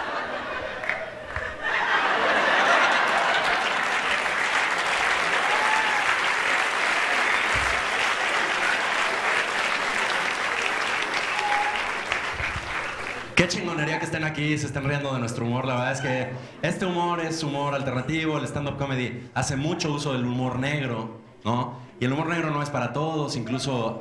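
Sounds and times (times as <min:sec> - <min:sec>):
audience applauding: 0:00.0 - 0:13.6.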